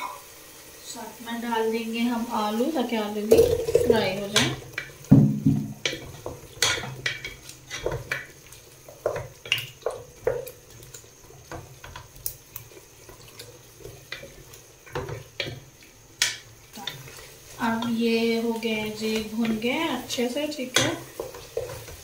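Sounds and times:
potatoes frying: 0:00.0 - 0:22.0
wooden spatula scraping a pot: 0:05.7 - 0:12.0, 0:18.8 - 0:22.0.

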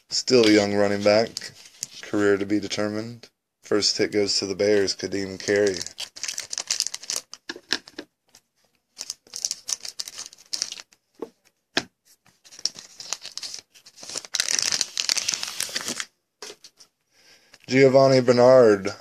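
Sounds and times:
foil wrapper crinkling and tearing: 0:05.4 - 0:07.5, 0:09.0 - 0:11.0, 0:12.4 - 0:16.1.

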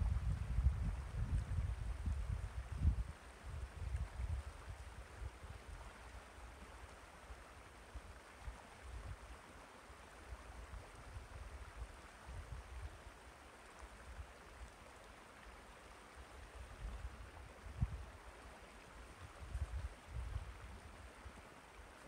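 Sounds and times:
wind rumble on microphone: 0:00.0 - 0:06.4, 0:08.0 - 0:09.4, 0:10.3 - 0:13.1, 0:16.4 - 0:21.4
river water flowing over rocks: 0:03.2 - 0:22.0.

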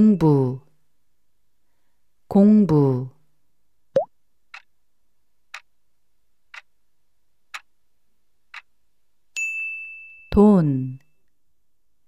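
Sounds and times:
clock ticks: 0:06.5 - 0:06.7, 0:07.5 - 0:07.7, 0:08.5 - 0:08.7.

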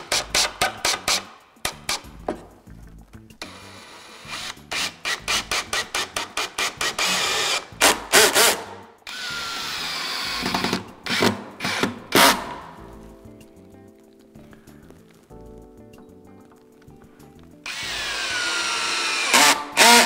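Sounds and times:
cordless drill driving screws: 0:03.4 - 0:12.6, 0:17.7 - 0:20.0.

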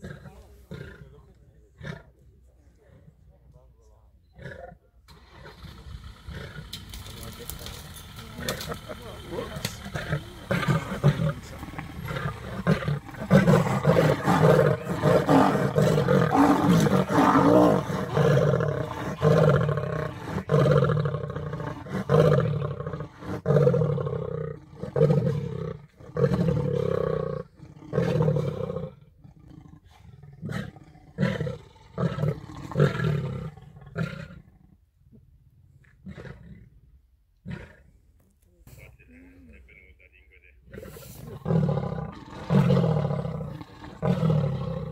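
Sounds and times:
lions snarling and growling: 0:00.0 - 0:02.2, 0:04.2 - 0:38.1, 0:40.6 - 0:44.9.

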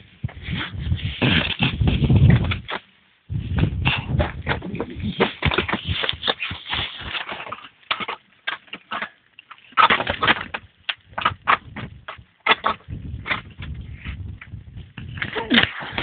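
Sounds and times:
crampons scraping on icy rock: 0:04.0 - 0:14.2, 0:15.0 - 0:16.0.

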